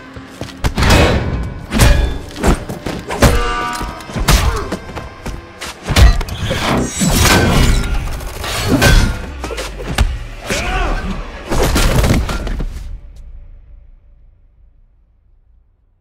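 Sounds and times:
music: 0.0s - 16.0s.

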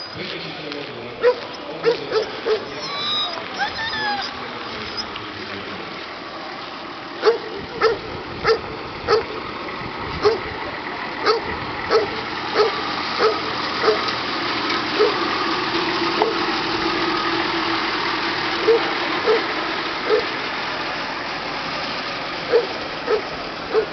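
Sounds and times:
suv engine driving past: 0.0s - 23.9s
dog barking: 1.2s - 2.8s, 7.2s - 9.3s, 10.2s - 10.5s, 11.2s - 14.0s, 15.0s - 15.2s, 18.6s - 19.4s, 20.0s - 20.3s, 22.5s - 23.9s.

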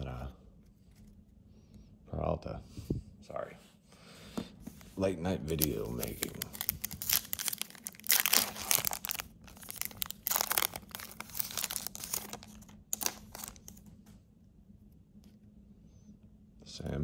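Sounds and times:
foil wrapper tearing and crinkling: 5.5s - 13.8s.

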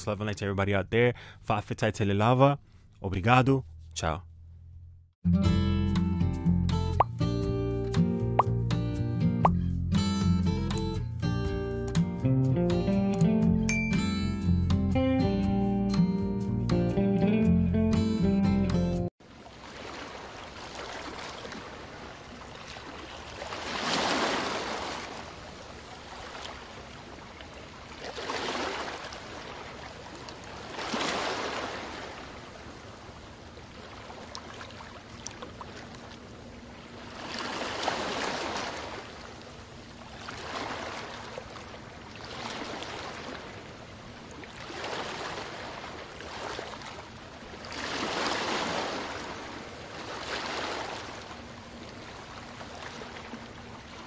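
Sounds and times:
small waves washing on beach: 19.2s - 54.0s.

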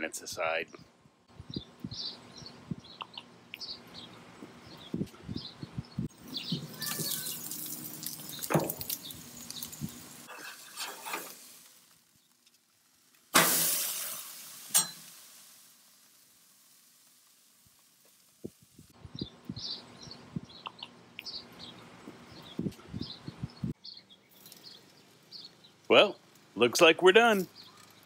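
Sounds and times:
bird chirps: 1.5s - 10.0s, 19.0s - 26.2s
steak sizzling on a grill: 6.2s - 19.0s, 24.3s - 28.0s
metal spatula clinking: 14.7s - 15.1s.

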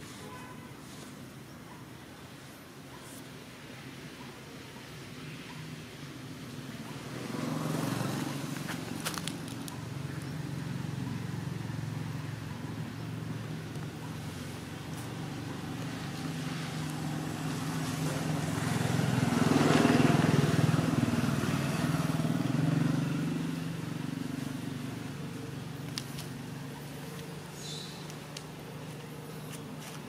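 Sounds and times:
vehicle engine droning: 6.7s - 30.0s.

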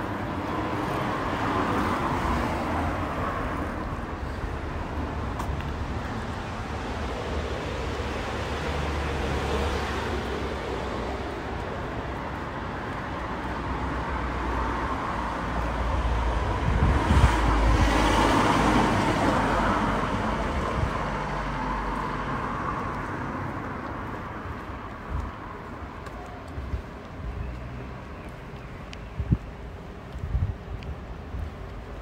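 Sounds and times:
street traffic: 0.0s - 32.0s
vehicle passing close by: 13.9s - 24.2s.

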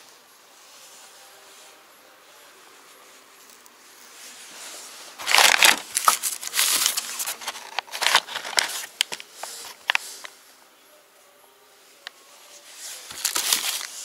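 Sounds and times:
plastic bags crinkling: 5.2s - 10.3s, 13.0s - 14.0s.

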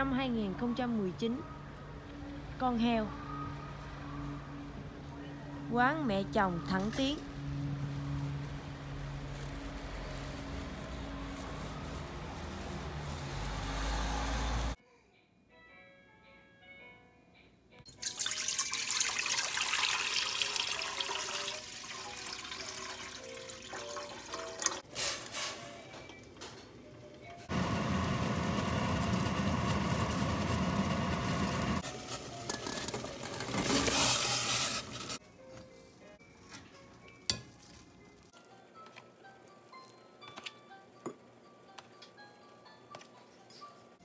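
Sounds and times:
soft background music: 0.0s - 27.5s, 31.8s - 44.0s
water running from tap: 17.9s - 24.8s.

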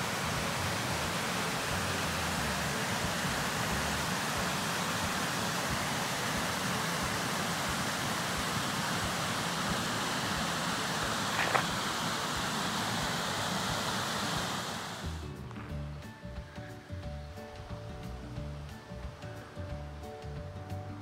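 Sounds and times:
stream rushing over rocks: 0.0s - 15.3s.

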